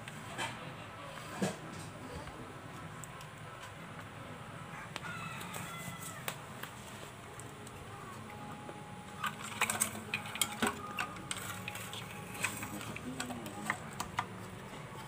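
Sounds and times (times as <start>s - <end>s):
steady low hum: 6.3s - 15.0s.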